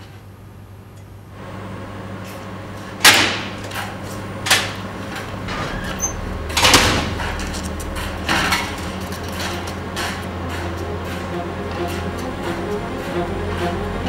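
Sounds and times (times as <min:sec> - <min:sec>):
low hum: 0:01.2 - 0:14.0.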